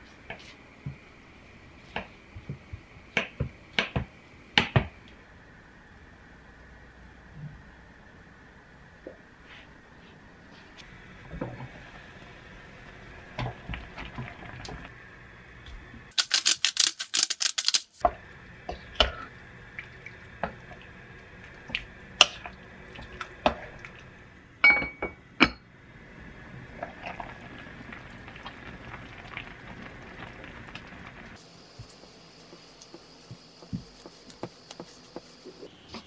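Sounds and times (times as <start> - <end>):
soup simmering and bubbling: 11.0 - 15.5, 18.0 - 24.5, 25.8 - 36.0.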